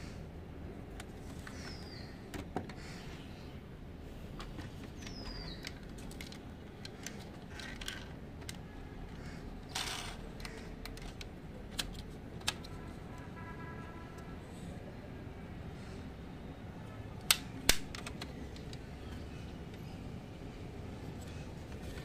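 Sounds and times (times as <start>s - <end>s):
clicks and taps of toy car handled: 4.4s - 8.6s, 9.7s - 12.8s, 17.2s - 18.9s.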